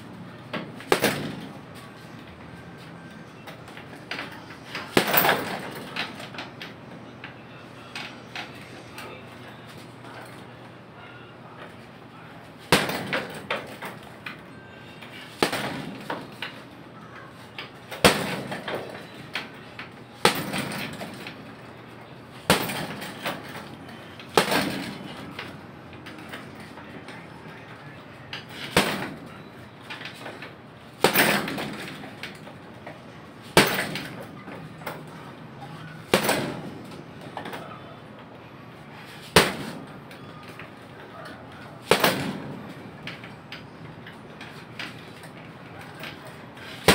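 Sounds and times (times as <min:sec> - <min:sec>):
gloves punching heavy bag: 0:15.3 - 0:16.4, 0:20.2 - 0:21.3, 0:22.4 - 0:23.6.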